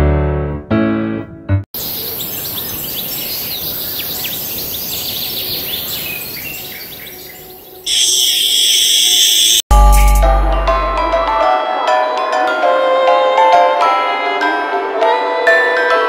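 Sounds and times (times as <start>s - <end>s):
insect buzzing: 1.8s - 9.6s
birds chirping: 1.8s - 10.1s
steady high hiss: 7.9s - 9.6s.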